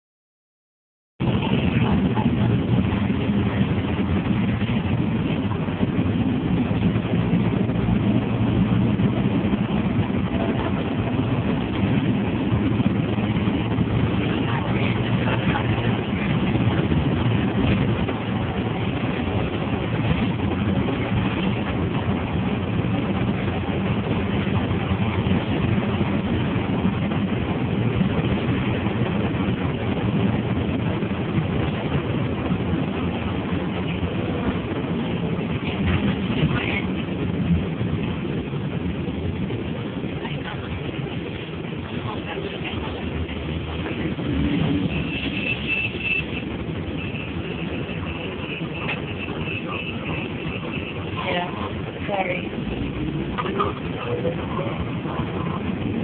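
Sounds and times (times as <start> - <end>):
bus engine humming: 1.2 - 56.0
road and cabin noise: 1.2 - 56.0.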